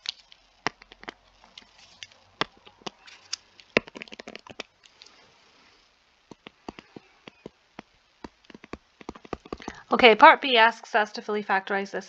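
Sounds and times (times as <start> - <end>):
stylus tapping on tablet screen: 3.7 - 4.7, 6.3 - 9.8.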